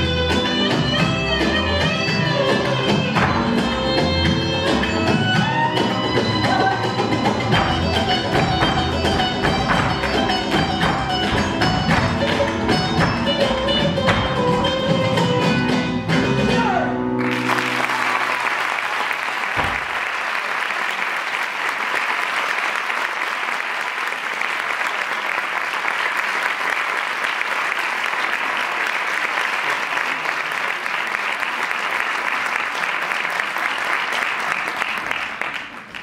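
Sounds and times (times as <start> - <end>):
music: 0.0 - 18.4
audience applause: 17.2 - 36.0.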